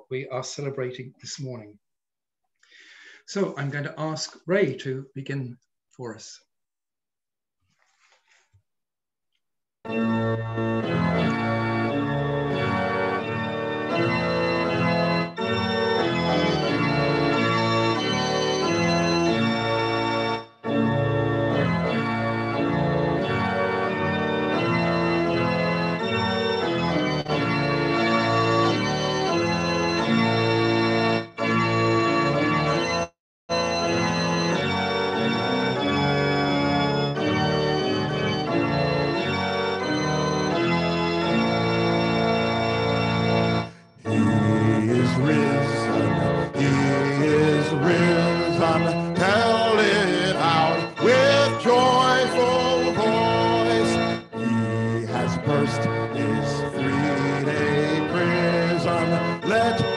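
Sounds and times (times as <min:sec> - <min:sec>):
organ chords on keyboard: 0:09.8 - 0:59.9.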